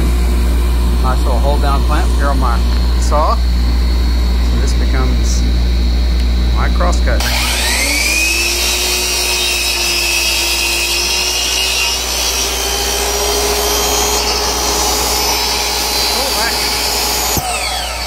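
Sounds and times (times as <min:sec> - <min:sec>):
shop vacuum humming: 0:00.0 - 0:18.0
miter saw cutting wood: 0:07.2 - 0:18.0.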